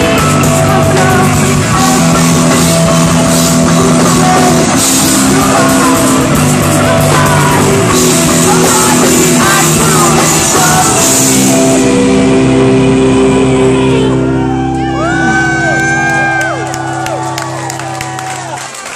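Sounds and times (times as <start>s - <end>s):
drums and cymbals: 0.0s - 12.3s
person singing: 0.0s - 16.8s
distorted electric guitars: 0.0s - 18.6s
bass guitar: 0.0s - 18.7s.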